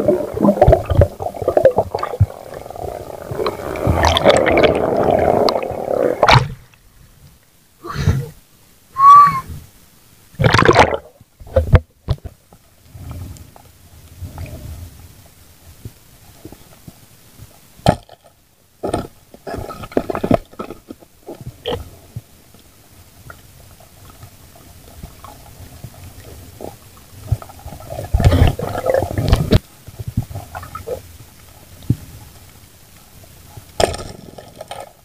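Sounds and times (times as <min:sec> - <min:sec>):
rushing water noise: 0:00.0 - 0:06.8.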